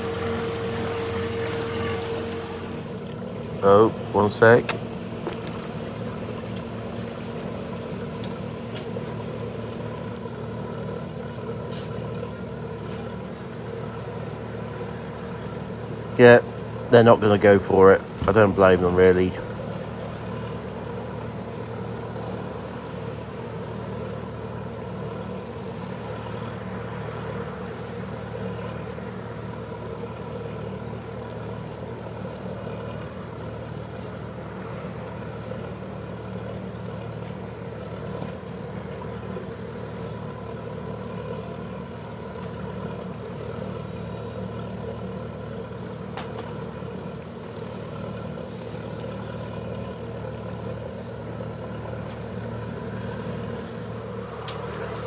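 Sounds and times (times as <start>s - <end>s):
boat engine running: 0.0s - 55.0s.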